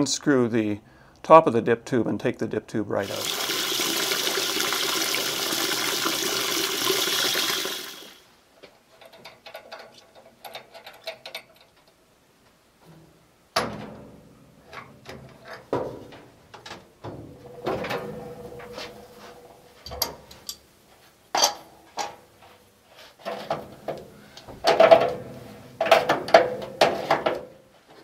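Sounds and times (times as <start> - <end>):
water splashing into a bucket: 3.0 - 8.2.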